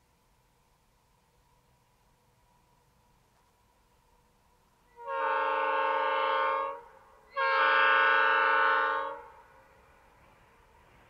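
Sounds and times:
locomotive horn blasts: 4.9s - 9.6s.

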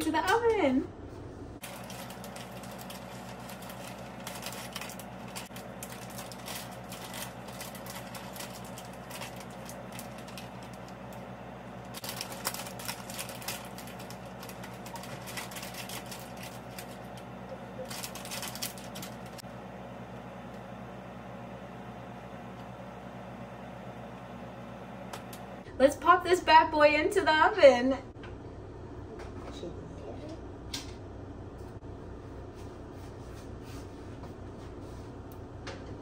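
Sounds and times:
steady hum: 0.0s - 36.0s
plastic bag crinkling: 1.6s - 19.4s.

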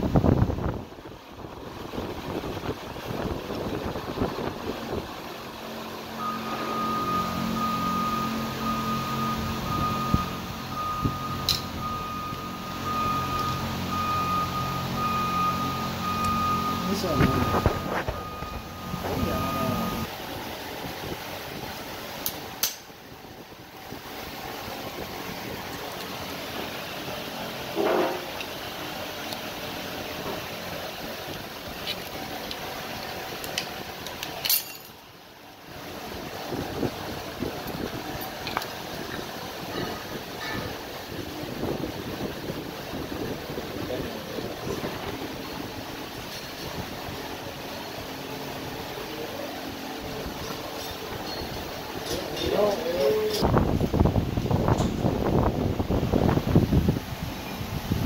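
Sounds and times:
motor hum with whine: 0.0s - 58.0s
steady background noise: 0.0s - 58.0s.

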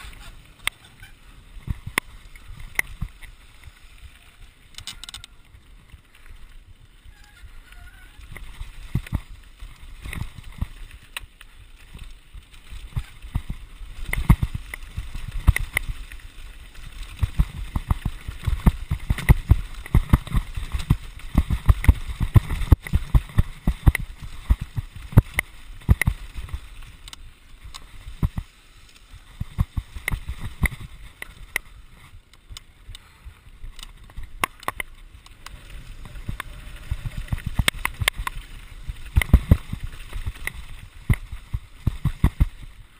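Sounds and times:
bike knocking and rattling: 0.0s - 3.8s, 4.6s - 42.9s.

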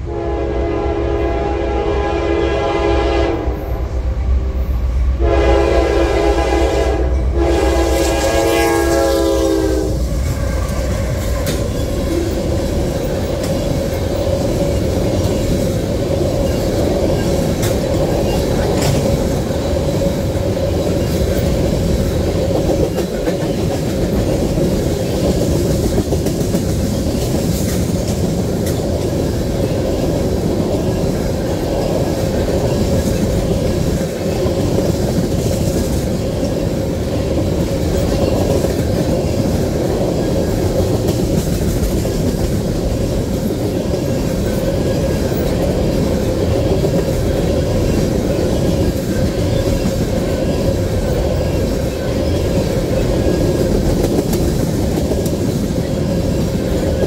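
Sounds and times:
locomotive air horn blasts: 0.0s - 4.0s, 5.2s - 10.0s
diesel locomotive rumble: 0.0s - 57.0s
train wheels rumbling on rails: 0.0s - 57.0s.

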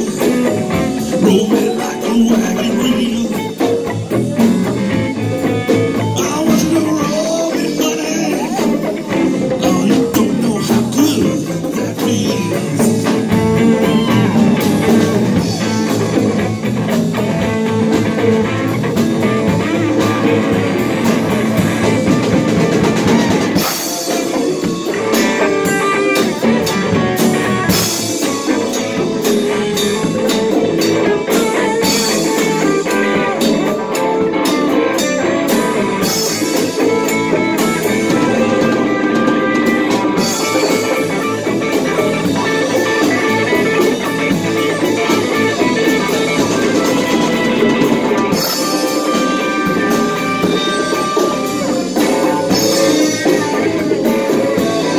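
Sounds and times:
congas: 0.0s - 54.9s
rock band playing: 0.0s - 54.9s.

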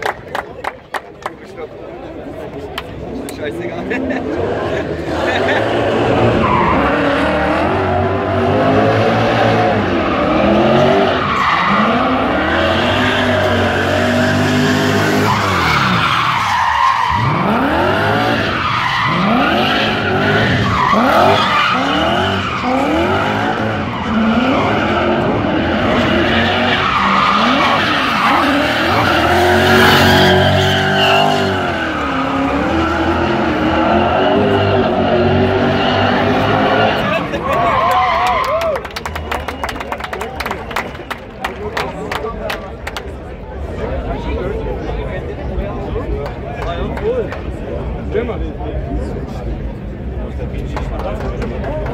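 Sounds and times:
car engines revving hard: 3.0s - 38.2s.

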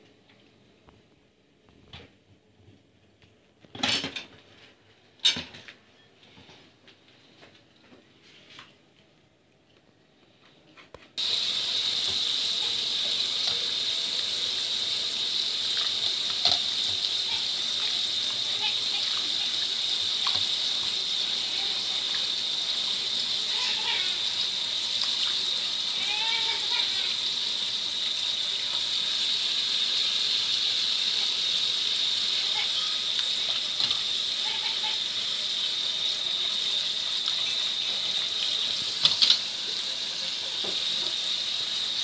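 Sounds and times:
dishes clattering in a metal sink: 3.7s - 4.5s, 5.2s - 5.8s, 15.8s - 17.6s, 38.9s - 39.5s
tap water running into bowl: 11.2s - 42.0s.

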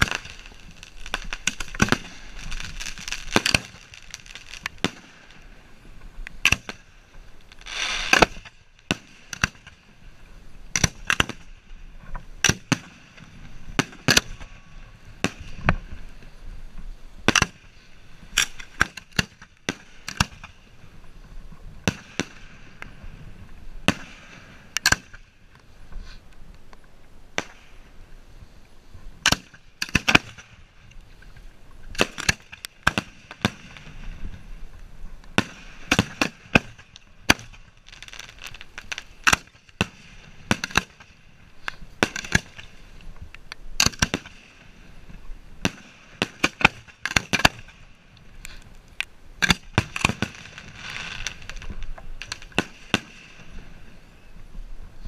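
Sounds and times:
fireworks bangs: 0.0s - 5.6s, 6.4s - 9.9s, 32.0s - 34.5s, 35.3s - 42.9s, 49.4s - 54.1s
fireworks hissing and crackling: 0.0s - 55.0s.

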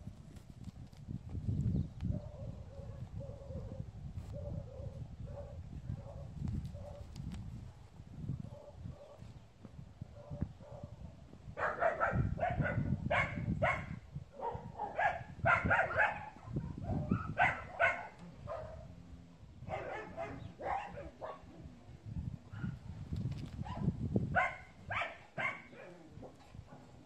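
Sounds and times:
dog barking: 4.4s - 6.3s, 10.2s - 11.0s, 11.6s - 18.9s, 19.7s - 21.5s, 23.6s - 26.0s.

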